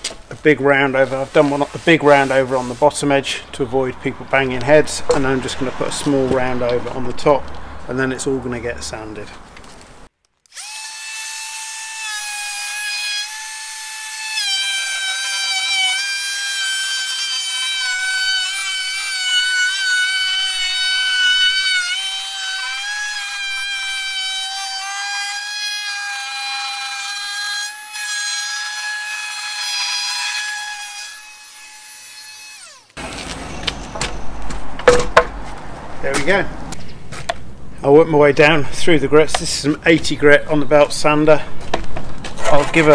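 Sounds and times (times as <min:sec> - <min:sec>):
router cutting wood: 0:10.5 - 0:33.3.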